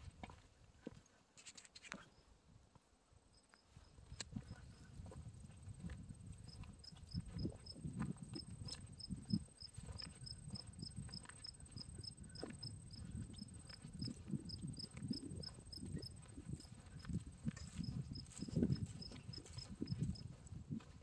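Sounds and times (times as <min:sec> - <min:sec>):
cricket chirping: 0:06.4 - 0:20.3.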